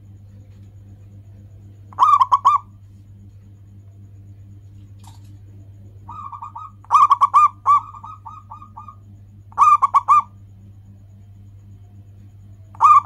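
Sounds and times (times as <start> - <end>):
steady low hum: 0.0 - 13.0
dove cooing: 1.9 - 2.8, 6.0 - 10.4, 12.7 - 13.0.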